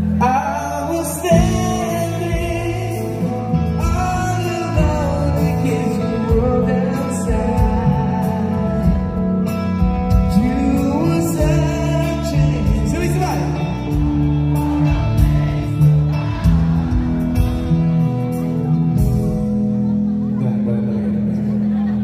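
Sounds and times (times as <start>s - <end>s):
man singing: 0.0s - 17.1s
drums: 0.0s - 20.3s
live rock band: 0.0s - 22.0s.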